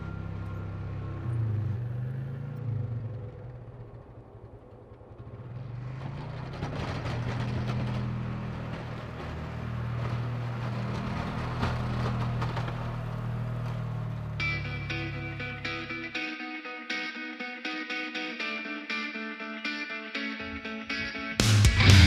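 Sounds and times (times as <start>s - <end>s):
utility vehicle engine running: 0.0s - 16.2s
plow blade scraping snow: 5.0s - 15.9s.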